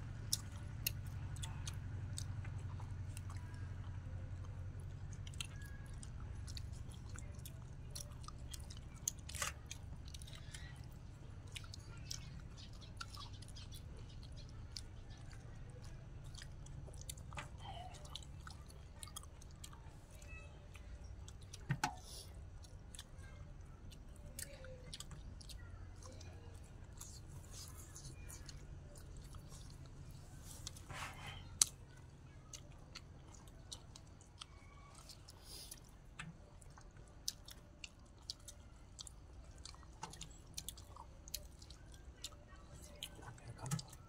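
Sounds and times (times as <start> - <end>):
people chewing and crunching food: 0.0 - 44.0.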